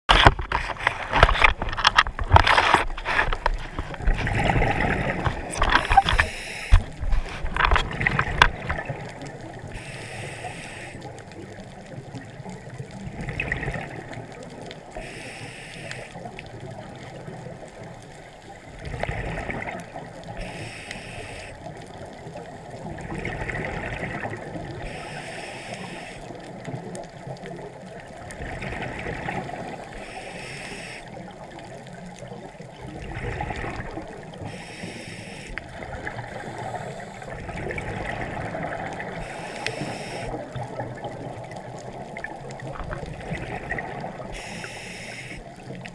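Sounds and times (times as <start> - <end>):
exhaled bubbles rushing: 3.4 - 9.7, 11.4 - 14.6, 18.7 - 20.2, 22.2 - 24.9, 27.9 - 29.9, 31.4 - 34.4, 35.6 - 44.4
regulator inhale hiss: 5.8 - 6.9, 9.7 - 11.1, 15.0 - 16.2, 20.4 - 21.7, 24.8 - 26.4, 29.8 - 31.2, 34.4 - 35.6, 36.3 - 37.3, 39.2 - 40.4, 44.3 - 45.5.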